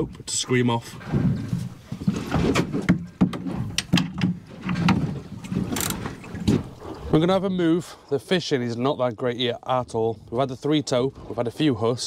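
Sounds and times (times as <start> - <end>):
knocks and clicks of fishing gear: 1.1 - 6.7.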